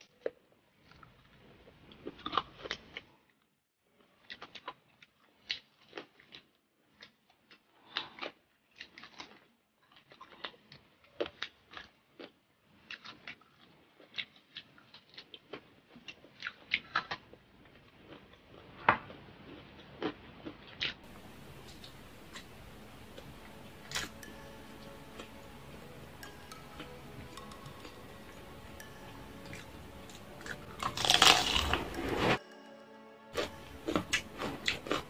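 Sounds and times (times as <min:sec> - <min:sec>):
person chewing crunchy food: 0:00.1 - 0:03.2, 0:04.2 - 0:35.0.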